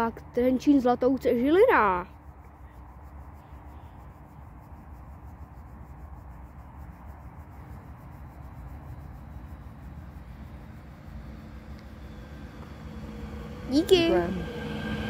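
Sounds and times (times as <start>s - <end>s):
wind rumble on microphone: 2.0s - 15.0s
train rumble and hum: 5.8s - 15.0s.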